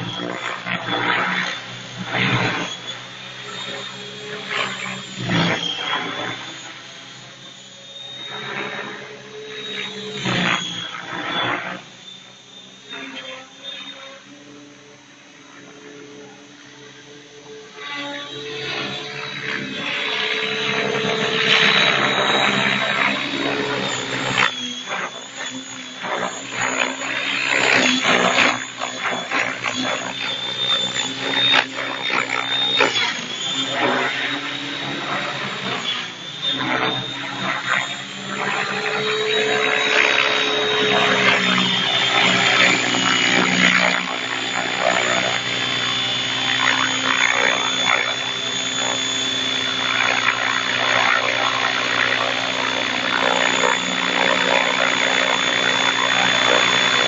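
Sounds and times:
rc helicopter whine: 0:00.0 - 0:57.0
rotor blades whooshing: 0:18.7 - 0:57.0.

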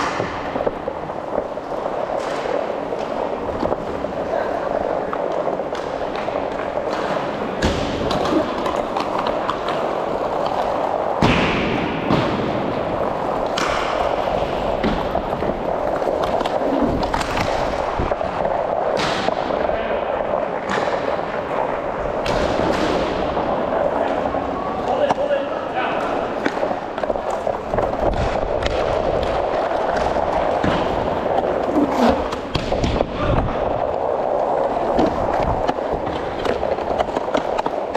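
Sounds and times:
skates on rink floor: 0:00.0 - 0:37.9
sticks and puck knocking: 0:26.0 - 0:37.9.

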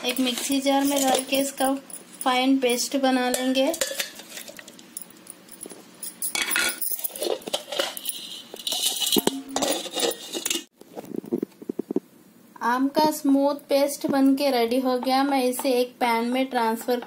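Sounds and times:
steel jar clinking: 0:00.0 - 0:10.7.

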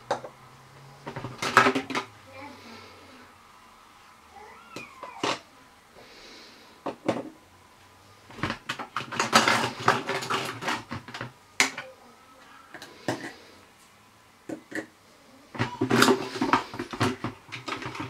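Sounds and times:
plastic toy pieces clattering: 0:01.1 - 0:02.1, 0:08.4 - 0:11.9, 0:15.6 - 0:18.0.

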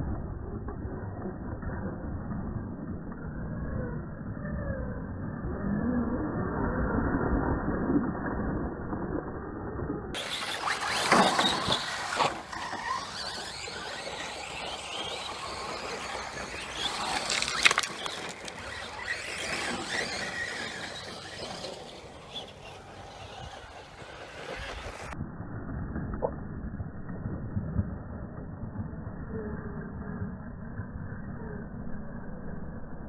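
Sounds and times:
rc car motor whine: 0:00.2 - 0:07.3, 0:09.4 - 0:25.2.

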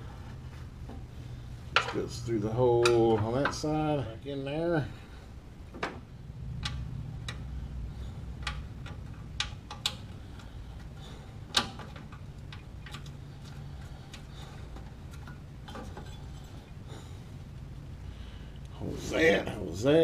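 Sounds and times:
faint low hum: 0:00.0 - 0:20.0
metal bracket clicks and taps: 0:08.4 - 0:10.5.

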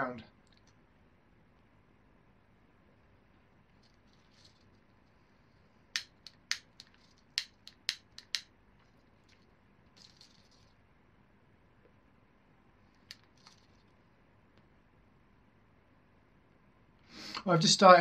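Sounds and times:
tobacco pipe clicks and taps: 0:06.0 - 0:08.5.

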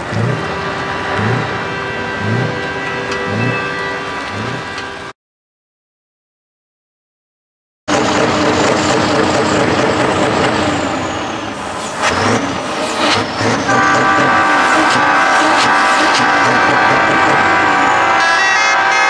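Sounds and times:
diesel truck engines: 0:00.0 - 0:05.1, 0:07.9 - 0:19.0
air horn: 0:00.6 - 0:05.1, 0:13.5 - 0:19.0.

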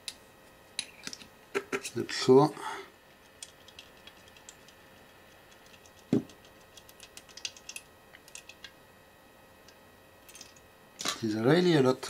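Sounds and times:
small metal parts clicking: 0:05.5 - 0:08.7, 0:10.2 - 0:11.2.

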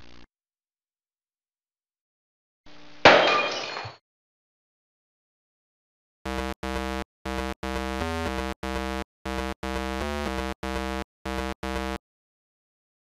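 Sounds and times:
buzzy synthesizer pulses: 0:06.3 - 0:12.0.

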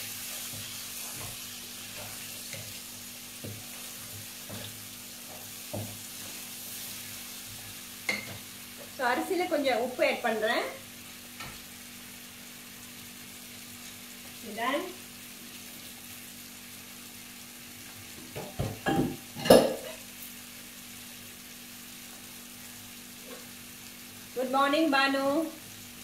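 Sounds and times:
chicken sizzling in a pan: 0:00.0 - 0:26.0
kitchenware clanking: 0:08.1 - 0:08.4, 0:18.4 - 0:20.0.

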